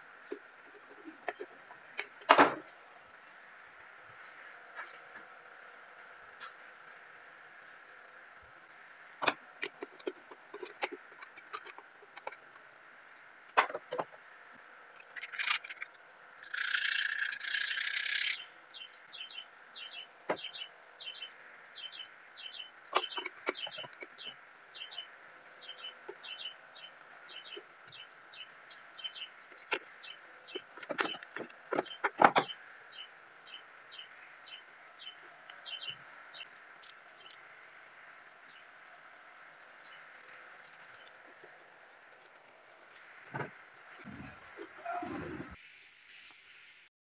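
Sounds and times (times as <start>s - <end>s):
small bird chirping: 16.4s - 37.5s
hiss: 45.0s - 46.9s.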